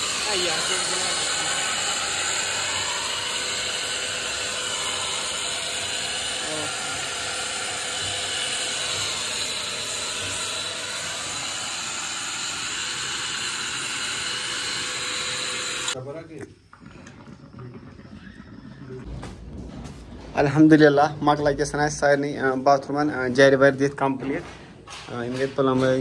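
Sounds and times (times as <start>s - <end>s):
circular saw running: 0.0s - 16.0s.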